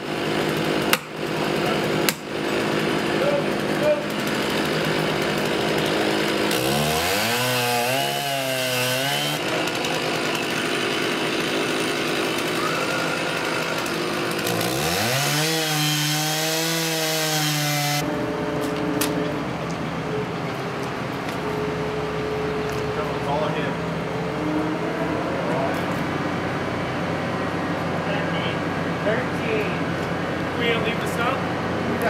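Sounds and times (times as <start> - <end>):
chainsaw cutting wood: 0.0 - 18.1.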